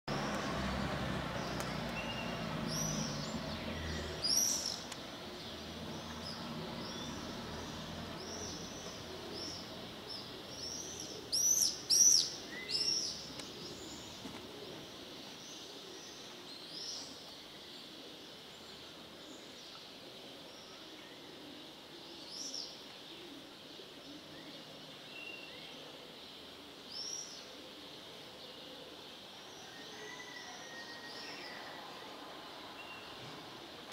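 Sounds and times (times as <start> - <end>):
small birds chirping: 0.1 - 30.3.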